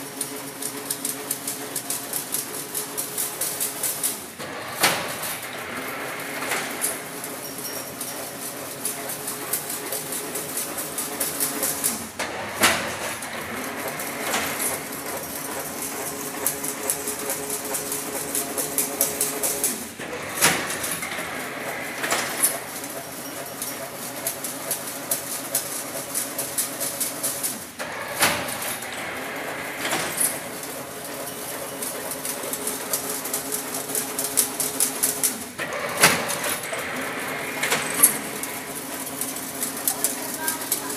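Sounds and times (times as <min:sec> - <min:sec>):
machine humming with rapid clicking: 0:00.0 - 0:40.9.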